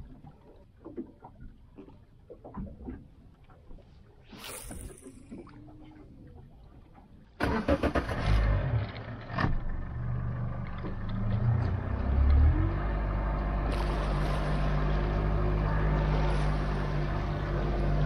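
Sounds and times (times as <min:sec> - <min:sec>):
outboard motor running: 0:08.9 - 0:18.0.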